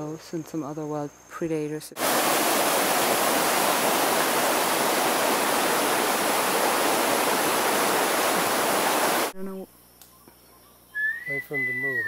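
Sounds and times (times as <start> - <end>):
water rushing over rocks: 2.0 - 9.3.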